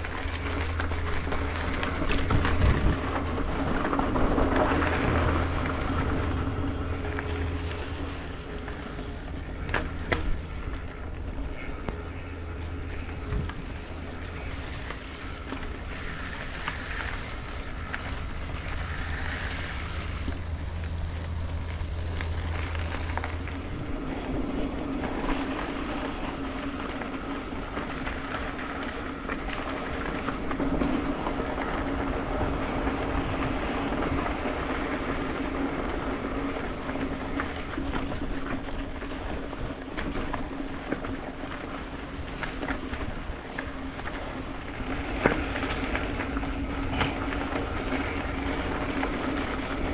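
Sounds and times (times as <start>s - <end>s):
engine-like hum: 0.0s - 49.9s
wind noise on microphone: 0.0s - 49.9s.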